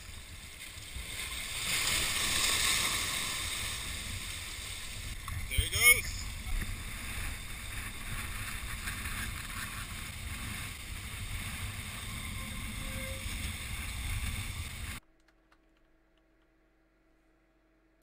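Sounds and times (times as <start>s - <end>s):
waves washing over rocks: 0.1s - 11.9s
wind buffeting microphone: 6.2s - 15.0s.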